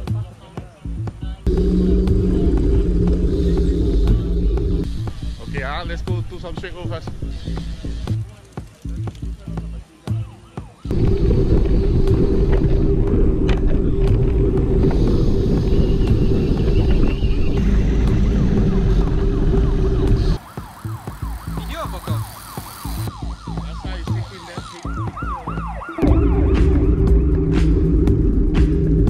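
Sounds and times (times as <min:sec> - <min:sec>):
rising and falling wail: 0:01.5 - 0:05.3, 0:10.9 - 0:21.0
wind buffeting camera: 0:10.9 - 0:20.4.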